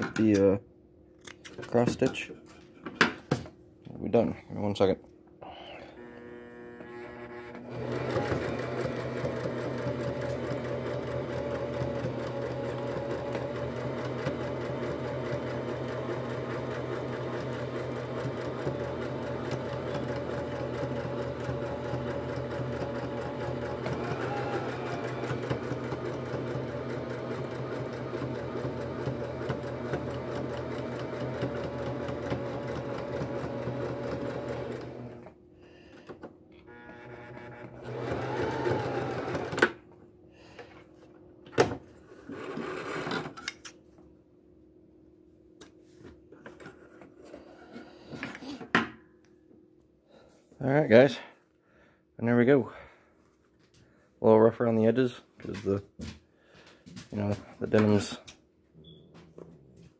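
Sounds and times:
sewing machine stitching: 6.0s - 35.3s, 36.7s - 39.8s.

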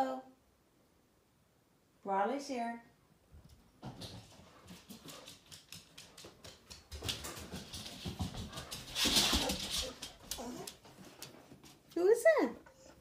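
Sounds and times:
dog whimpering: 9.4s - 10.8s.

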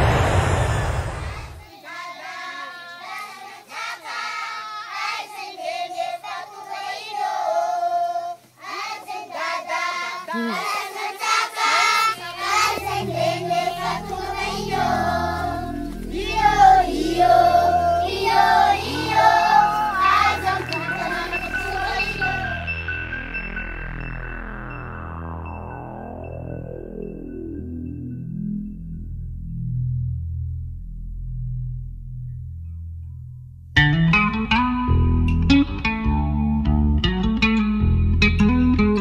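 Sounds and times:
aircraft engine noise: 0.0s - 1.6s
group of voices singing: 1.2s - 23.2s.

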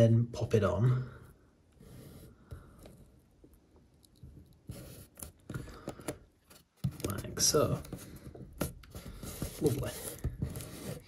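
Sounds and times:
fingers rubbing tape: 4.5s - 8.0s, 8.6s - 11.0s.

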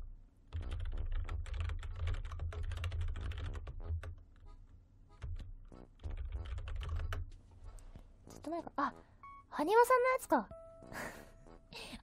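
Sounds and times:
fast typing on keyboard: 0.5s - 4.2s, 5.2s - 7.3s.

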